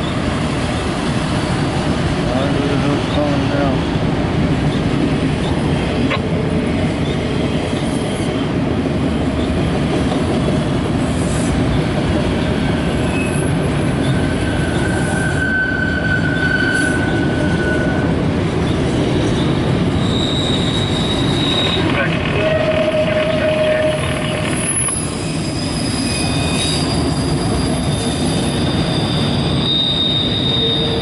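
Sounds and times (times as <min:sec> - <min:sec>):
freight train wheels rumbling: 0:00.0 - 0:31.0
high wheel squeal: 0:13.0 - 0:18.1, 0:19.4 - 0:31.0.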